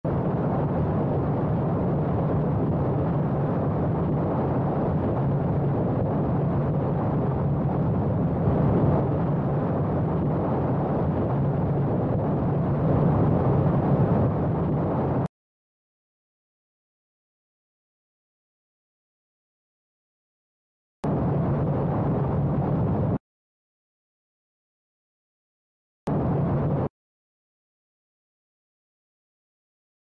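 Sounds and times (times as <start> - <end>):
wind rush on microphone: 0.0 - 15.3, 21.0 - 23.2, 26.1 - 26.9.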